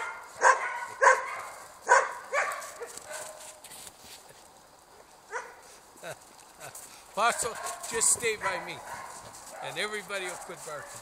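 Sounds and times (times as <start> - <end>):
dogs barking: 0.0 - 3.6, 5.3 - 5.7, 7.2 - 11.0.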